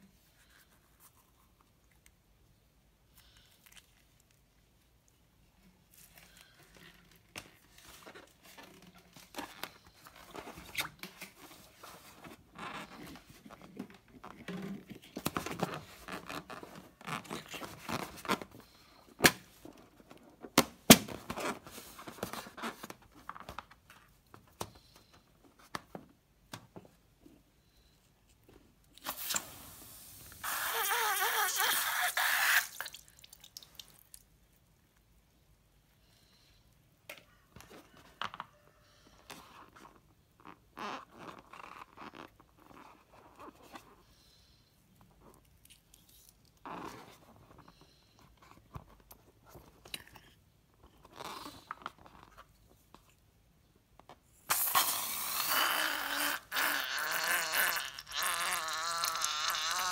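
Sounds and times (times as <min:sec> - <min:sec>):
balloon squishing and crackling: 0:05.9 - 0:24.0, 0:28.9 - 0:32.9, 0:54.3 - 0:59.9
slime and air hissing out: 0:29.0 - 0:32.9, 0:54.5 - 0:56.7.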